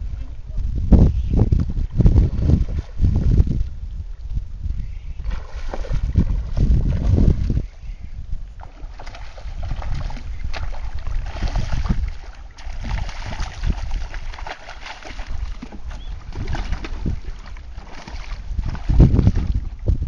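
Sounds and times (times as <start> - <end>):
wind on microphone: 0.0 - 20.0
fish splashing in water: 8.6 - 19.7.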